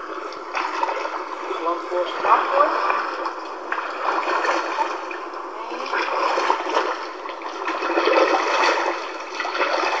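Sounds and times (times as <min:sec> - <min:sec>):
floodwater splashing and rushing: 0:03.8 - 0:10.0.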